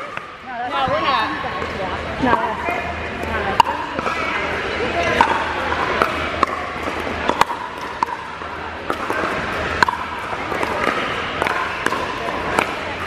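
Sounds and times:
paddles hitting plastic ball: 5.0s - 13.0s.

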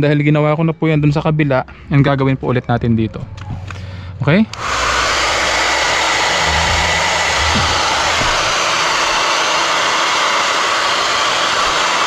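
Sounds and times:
hair dryer running: 4.5s - 12.0s.

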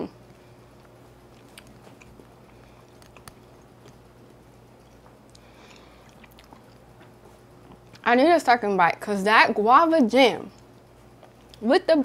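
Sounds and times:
steady low hum: 0.0s - 12.0s
faint chewing: 0.2s - 8.1s, 10.5s - 11.6s.

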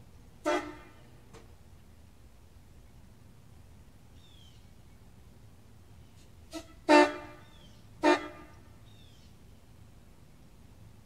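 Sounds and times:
train horn blasts: 0.4s - 1.1s, 6.5s - 8.7s.

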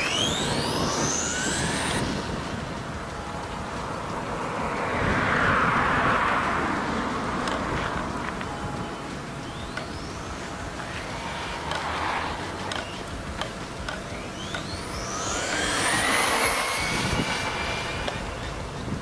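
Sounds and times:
electric motor whining: 0.0s - 4.0s, 9.3s - 19.0s.

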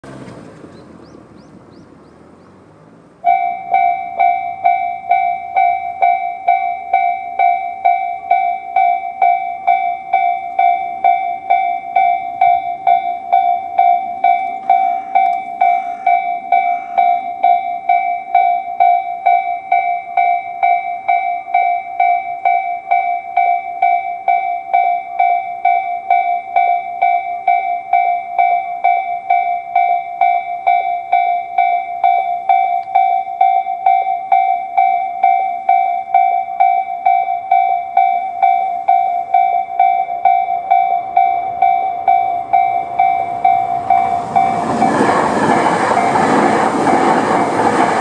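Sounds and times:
car driving off: 0.0s - 5.6s, 40.7s - 48.0s
level crossing warning bells: 3.2s - 48.0s.

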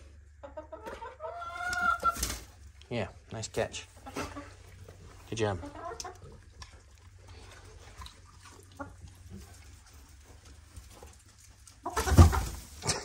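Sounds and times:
rustling of straw bedding: 7.2s - 13.0s.

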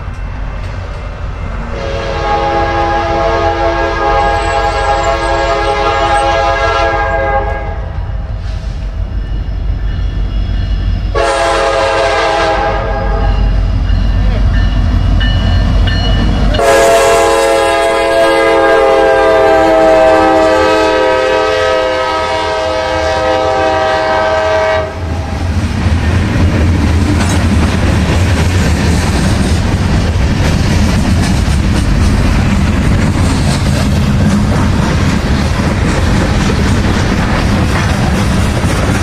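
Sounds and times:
train rumble and wheel clatter: 0.0s - 39.0s
train horn chord: 1.7s - 7.9s, 11.1s - 13.5s, 16.5s - 25.4s.

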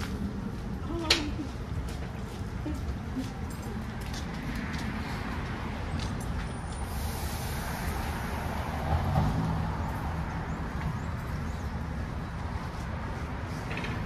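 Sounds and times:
vehicle rumble: 0.0s - 14.0s.

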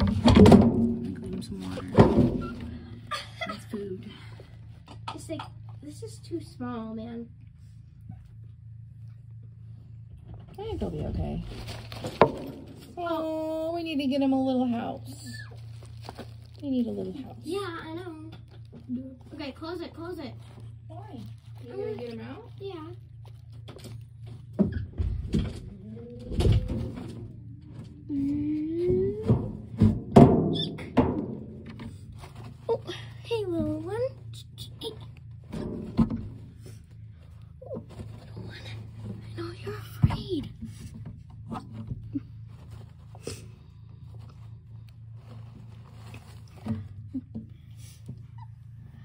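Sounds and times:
steady low hum: 0.0s - 49.0s
rustling paper bedding: 11.3s - 18.6s, 42.2s - 47.0s.

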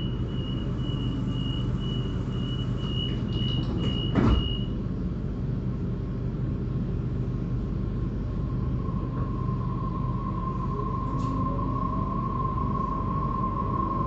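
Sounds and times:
train door warning beeps: 0.0s - 4.8s
train carriage hum: 0.0s - 14.0s
train doors shutting thud: 2.8s - 4.8s.

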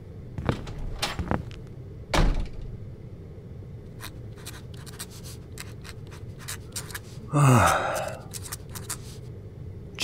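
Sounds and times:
low room hum: 0.0s - 10.0s
door shutting thud: 2.1s - 2.7s.

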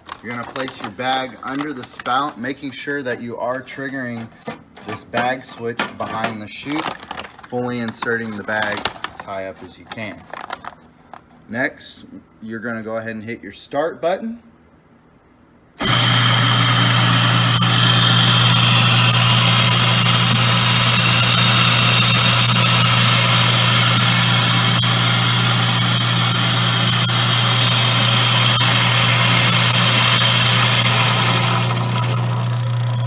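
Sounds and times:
coffee beans grinding: 0.0s - 2.8s, 15.8s - 33.0s
coffee grinder motor hum: 15.8s - 33.0s.

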